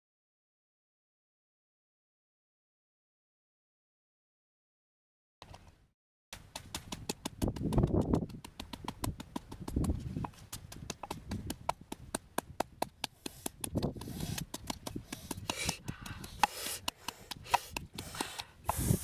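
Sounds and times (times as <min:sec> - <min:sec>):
wooden pestle pounding in mortar: 0:06.5 - 0:18.5.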